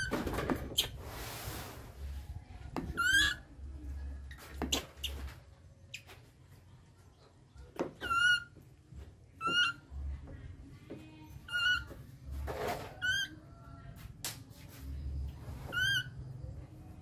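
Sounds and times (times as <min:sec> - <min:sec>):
baby monkey squealing: 0:00.7 - 0:01.0, 0:02.9 - 0:03.5, 0:08.0 - 0:08.6, 0:09.4 - 0:09.9, 0:11.4 - 0:11.9, 0:13.0 - 0:13.4, 0:15.7 - 0:16.2.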